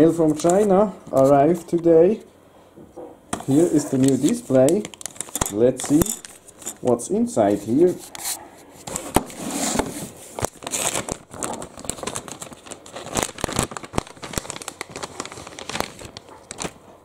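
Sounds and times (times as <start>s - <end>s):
plastic bag crinkling: 3.4s - 8.0s, 10.0s - 17.0s.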